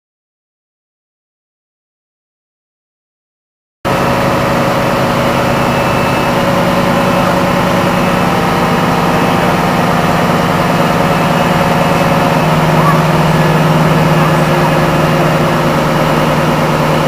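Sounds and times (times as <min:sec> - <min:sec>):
diesel engine idling: 0:03.9 - 0:17.0.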